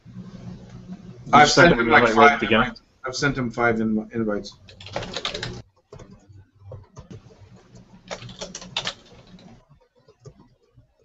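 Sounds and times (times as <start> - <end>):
low hum: 0.0 - 3.6
typing on computer keyboard: 4.7 - 7.3, 8.1 - 10.6.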